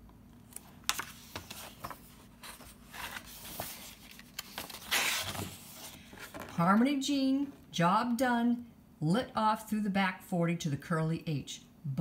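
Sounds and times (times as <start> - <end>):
page turning: 0.4 - 6.6.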